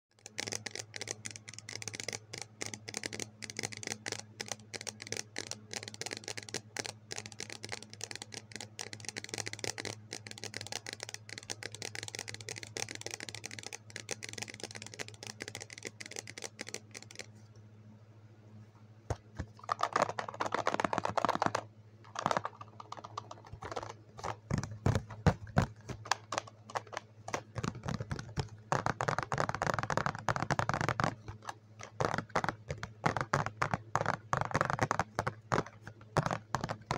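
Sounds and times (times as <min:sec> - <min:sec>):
fingers tapping plastic cup: 0:00.2 - 0:17.3, 0:19.1 - 0:36.9
low steady hum: 0:00.2 - 0:36.9.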